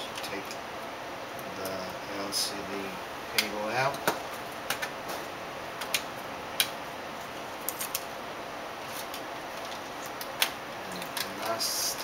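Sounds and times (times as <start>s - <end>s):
steady hiss: 0.0s - 12.0s
clicks and taps of laptop parts: 3.4s - 4.9s.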